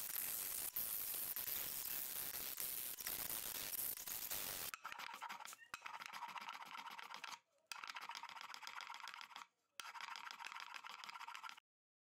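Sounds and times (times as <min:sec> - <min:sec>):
sandpaper scratching on wood: 0:00.0 - 0:07.4, 0:09.8 - 0:11.6.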